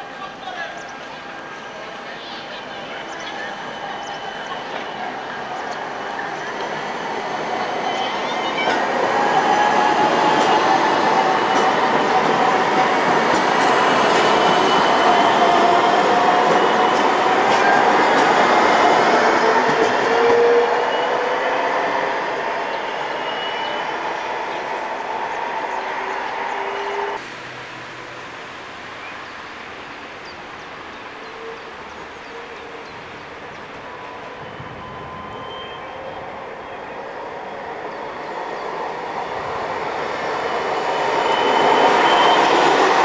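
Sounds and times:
trams passing on rails: 0.0s - 43.0s
outdoor hiss: 27.2s - 32.2s.

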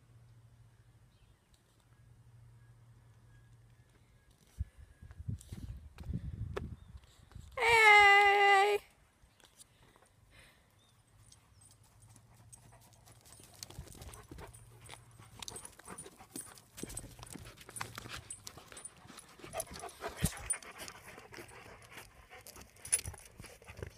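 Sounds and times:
dog panting: 11.9s - 23.9s.

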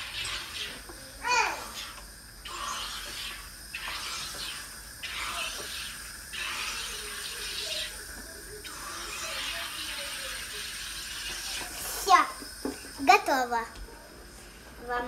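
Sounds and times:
gas hissing into bottle: 0.0s - 13.6s.

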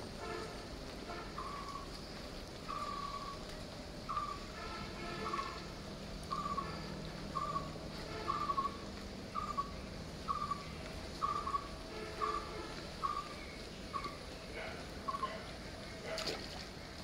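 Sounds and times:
bird calling: 1.4s - 1.9s, 2.6s - 3.4s, 4.1s - 5.7s, 6.3s - 16.5s.

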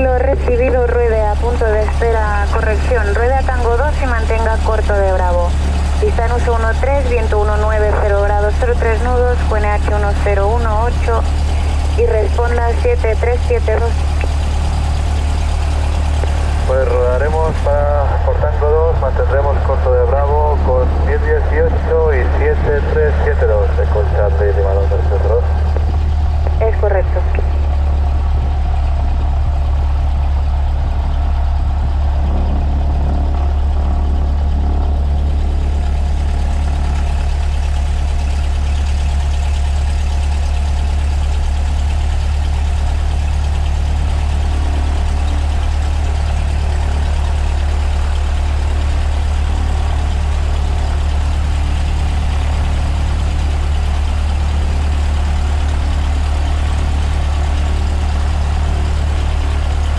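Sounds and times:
airplane engine and propeller droning: 0.0s - 59.9s.

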